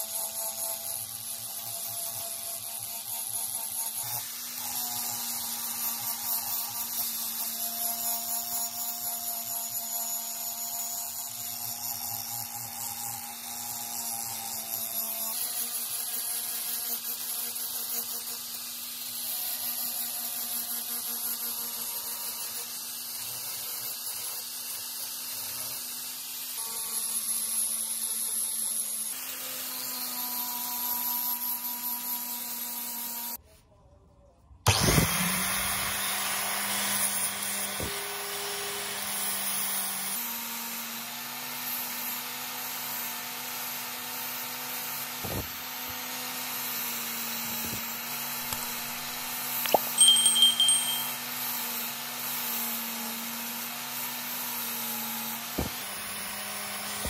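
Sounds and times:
electric power tool humming: 0.0 - 33.0, 34.7 - 57.0.

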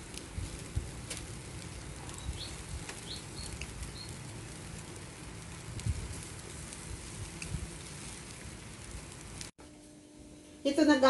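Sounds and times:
fish sizzling on a grill: 0.0 - 9.5
bird chirping: 2.2 - 4.2.

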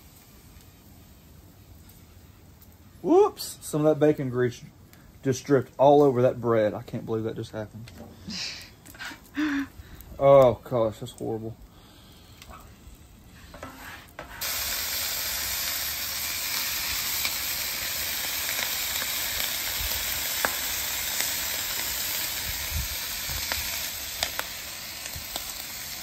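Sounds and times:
meat sizzling on a griddle: 0.0 - 2.3, 13.4 - 26.0.

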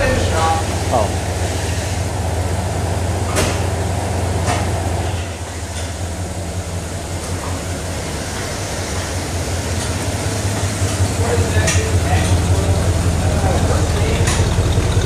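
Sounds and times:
pickup engine idling: 0.0 - 15.0
short clunks: 3.3 - 3.8.

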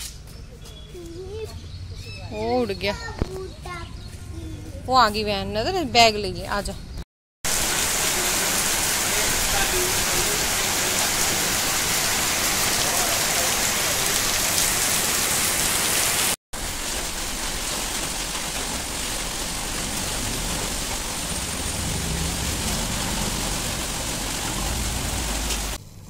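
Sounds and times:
heavy rain pouring: 7.5 - 26.0.

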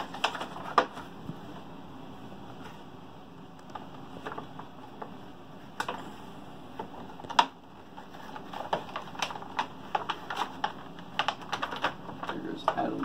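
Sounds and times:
plastic blister packaging clicking: 6.8 - 13.0.

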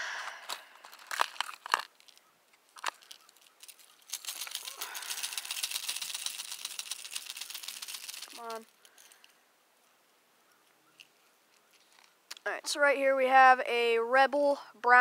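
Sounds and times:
lures rattling and crinkling: 0.3 - 9.4, 10.9 - 12.2.

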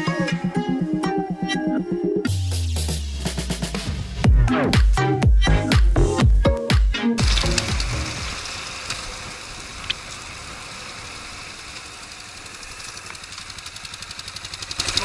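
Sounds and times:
wind and road noise: 7.2 - 14.1
motorcycle engine: 7.2 - 15.0.

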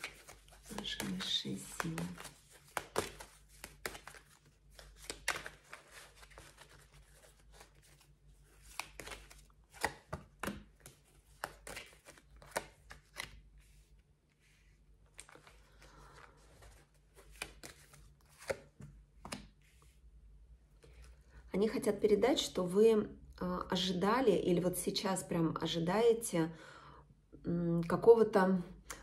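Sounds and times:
cards shuffled and laid down: 0.0 - 13.7, 15.0 - 19.9.

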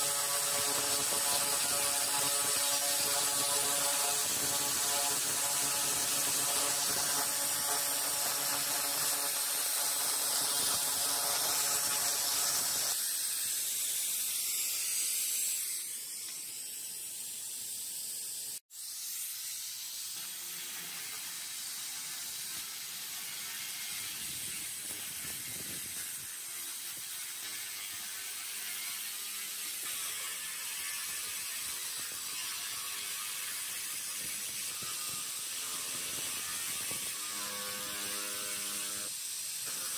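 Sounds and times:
laser cleaner crackling buzz: 0.0 - 13.4, 29.6 - 39.9.

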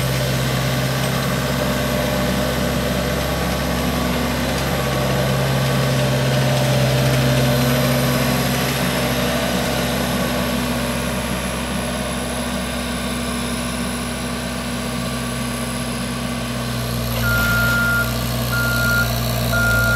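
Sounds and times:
diesel engine running: 0.0 - 19.9
reversing alarm beeping: 17.2 - 19.9.

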